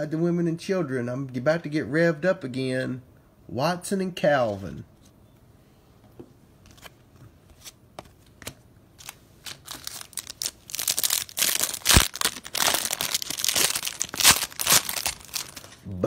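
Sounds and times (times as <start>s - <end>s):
plastic wrapper crinkling and tearing: 9.0s - 15.8s.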